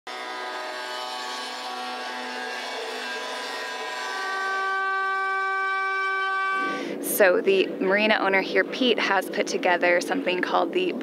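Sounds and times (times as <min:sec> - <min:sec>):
angle grinder cutting: 0:00.1 - 0:06.8
trim router whine: 0:00.1 - 0:06.9.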